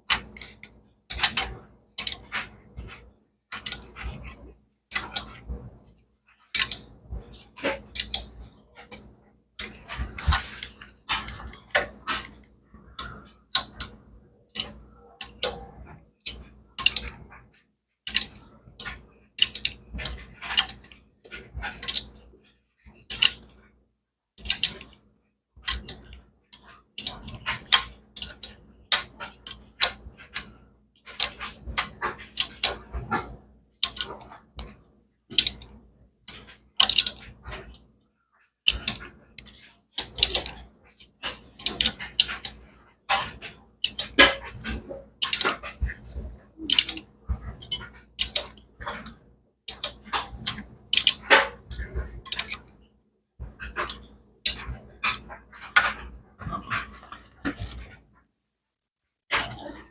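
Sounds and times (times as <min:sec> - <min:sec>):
hand tools clicking on metal: 0:43.3 - 0:49.1.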